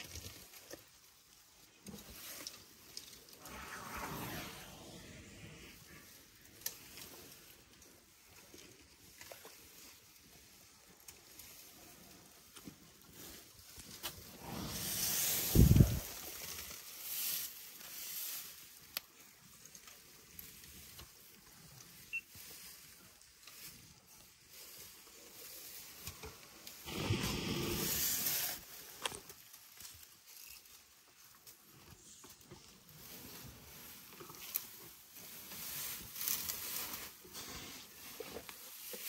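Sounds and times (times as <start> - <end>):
short rushing noises: 3.3 - 6.1
elephants feeding: 32.9 - 39.0.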